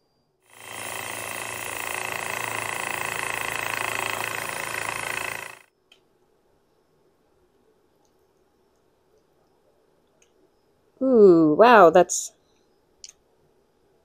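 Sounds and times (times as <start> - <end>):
motor hum: 0.5 - 5.7.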